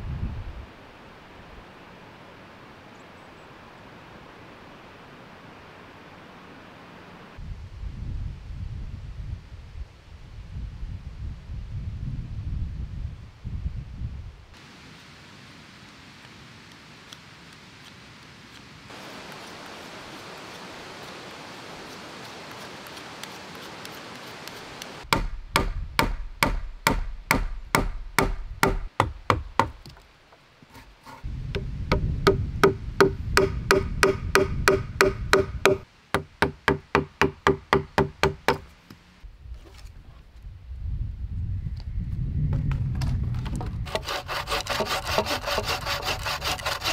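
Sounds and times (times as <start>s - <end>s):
faint steady hiss: 0.0s - 25.5s, 26.3s - 42.2s
axe chopping a log: 25.1s - 30.0s, 31.6s - 38.7s.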